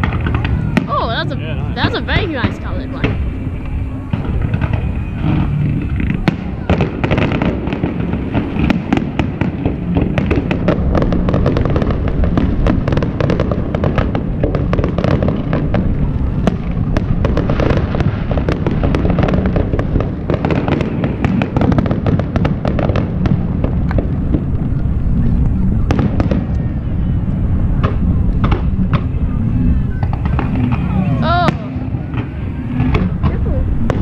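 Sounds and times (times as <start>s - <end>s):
fireworks bangs and crackles: 0.0s - 34.0s
low rumble: 0.0s - 34.0s.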